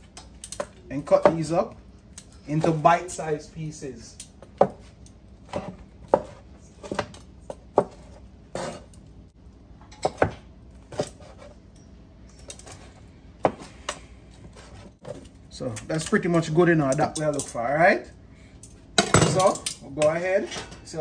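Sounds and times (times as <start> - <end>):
knife chopping on plastic board: 5.5 - 8.8, 10.0 - 11.4.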